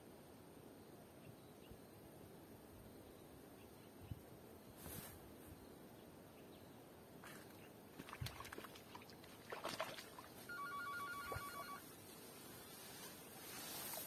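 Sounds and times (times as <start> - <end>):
rustling in grass: 4.7 - 5.6, 11.8 - 14.0
net rope hauled through grass: 4.8 - 5.3, 11.8 - 14.0
mobile phone ringing: 10.5 - 11.9.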